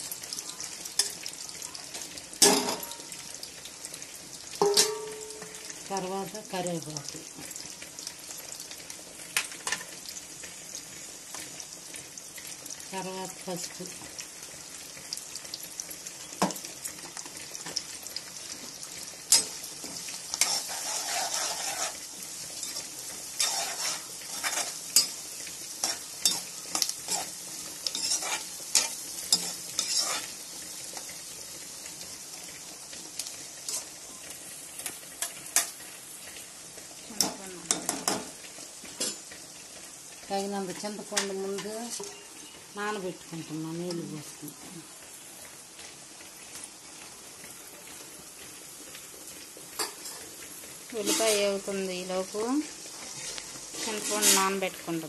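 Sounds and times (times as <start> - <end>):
onions sizzling in hot oil: 0.0 - 55.0
spoon scraping and clicking on pan: 4.6 - 5.6, 19.3 - 22.0, 22.6 - 25.2, 25.8 - 30.3.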